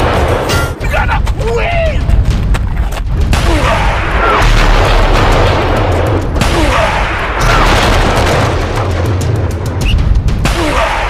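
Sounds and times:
music: 0.0 - 11.0
cartoon booms and blasts: 3.3 - 9.2.

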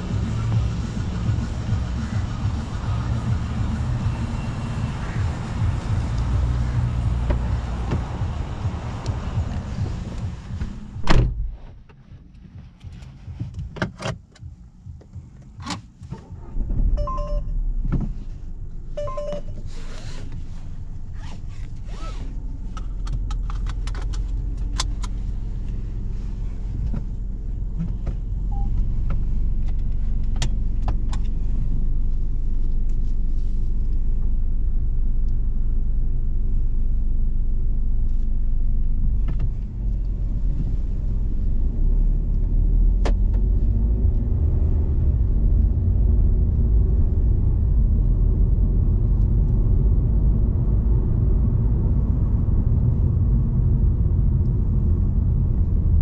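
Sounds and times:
car engine starting and idling: 0.0 - 56.0
car door shutting thud: 10.6 - 11.8
short beeps: 16.9 - 17.6, 19.0 - 19.6, 28.5 - 28.8.

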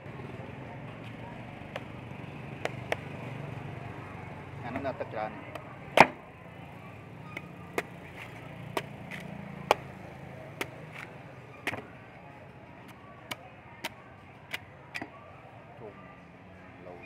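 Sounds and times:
knife chopping coconut husk: 1.7 - 3.1, 5.5 - 6.2, 7.3 - 11.9.

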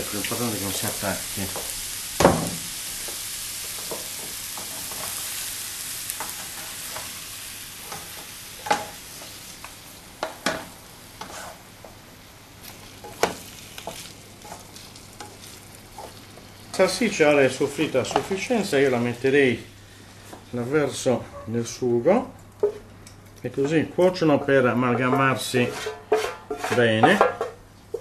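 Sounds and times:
sausage sizzling in frying pan: 0.0 - 21.0.

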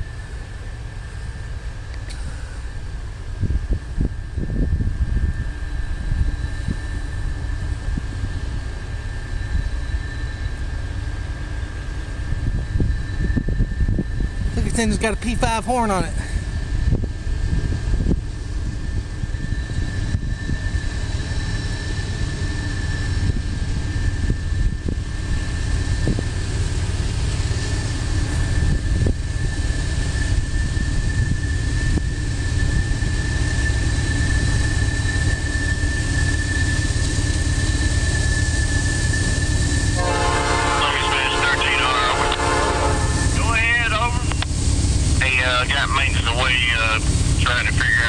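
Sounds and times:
freight train rumble: 0.0 - 48.0
locomotive air horn: 40.0 - 43.4.

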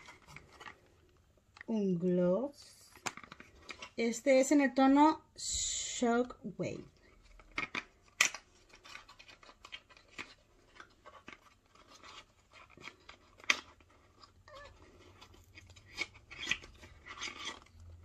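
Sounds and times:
cardboard scraping and crackling: 0.0 - 1.2, 8.5 - 18.0
sharp clicks of box: 7.4 - 11.4.

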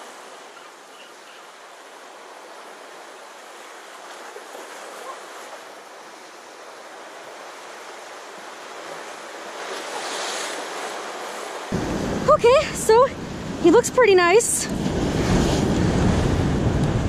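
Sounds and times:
surf breaking on rocks: 8.6 - 17.0.

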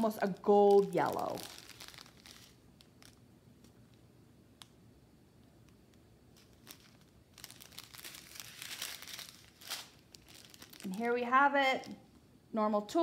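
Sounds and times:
plastic bags crinkling: 0.0 - 4.0, 6.3 - 12.0.

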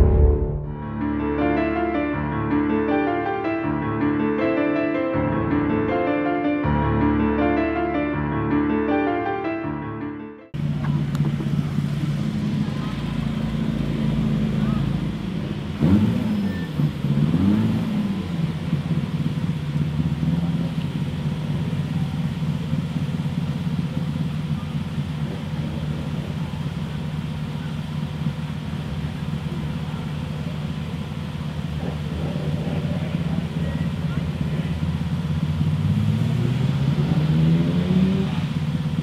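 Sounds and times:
car engine revving and idling: 10.6 - 39.0.

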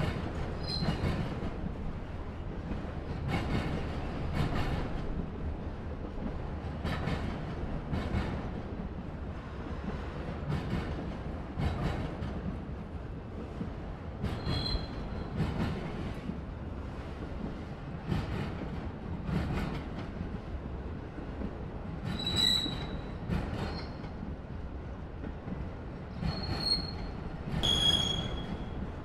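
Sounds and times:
freight train rumbling past: 0.0 - 29.0
high-pitched wheel squeals: 0.6 - 1.0, 14.4 - 15.2, 22.2 - 23.0, 26.3 - 28.8.

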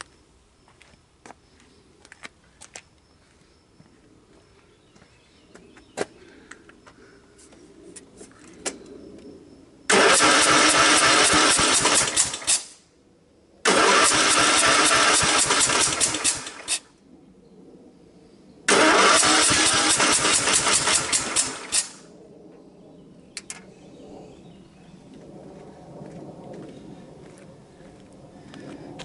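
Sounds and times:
engine cranking on starter: 9.9 - 12.8, 13.6 - 16.8, 18.7 - 22.0.

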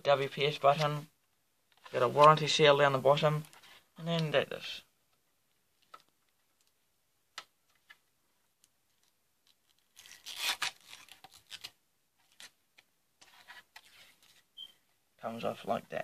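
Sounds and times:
plastic scraping and rustling: 8.6 - 14.6.

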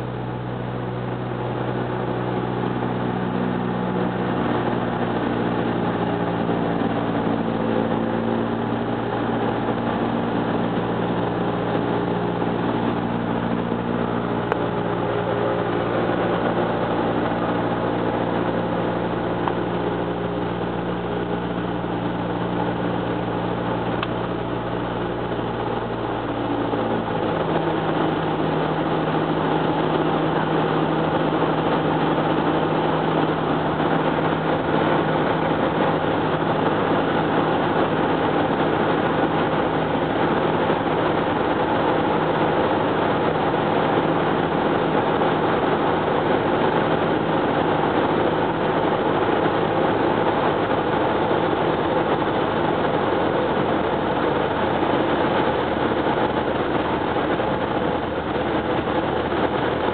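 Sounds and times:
aircraft engine droning in cabin: 0.0 - 59.9.

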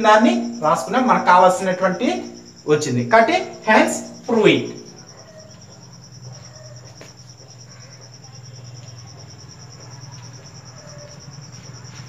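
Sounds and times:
low steady hum: 0.0 - 5.1
cricket chirping: 0.0 - 12.0.

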